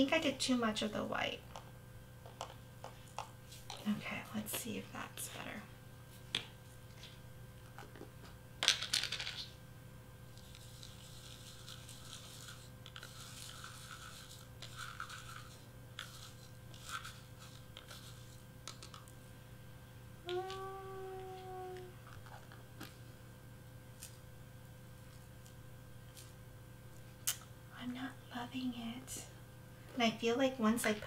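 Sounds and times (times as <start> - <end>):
glitter shaken in plastic pot: 10.4 - 18.3.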